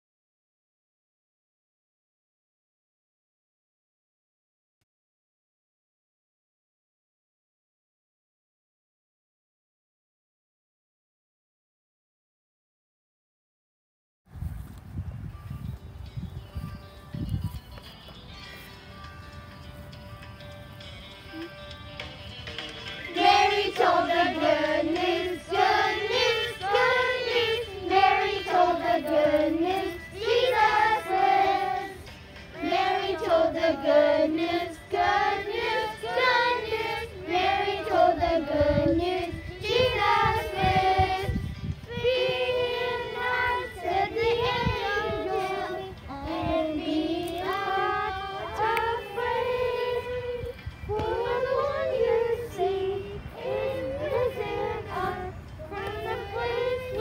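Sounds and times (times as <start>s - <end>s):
children's choir singing: 22.8s - 57.0s.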